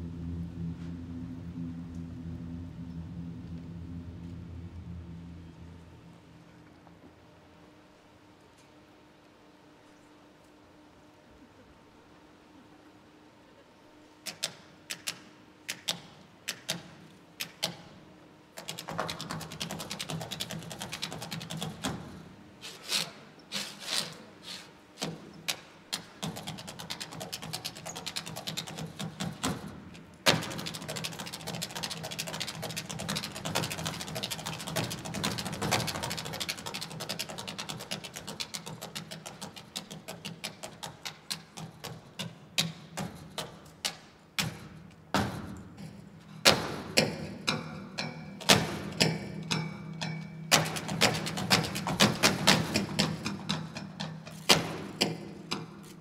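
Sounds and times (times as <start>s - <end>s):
steady low hum: 0.0s - 56.0s
percussive mechanical clicking music: 14.3s - 17.8s, 18.6s - 21.9s, 30.3s - 44.6s, 46.5s - 55.7s.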